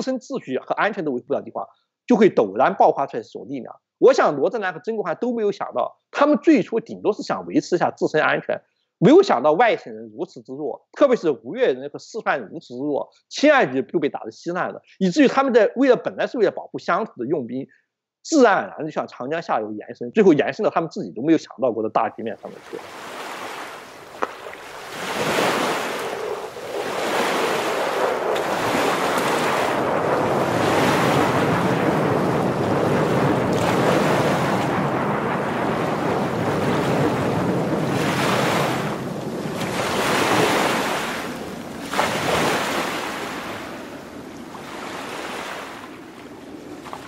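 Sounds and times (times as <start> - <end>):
ocean waves washing: 22.3 - 47.0.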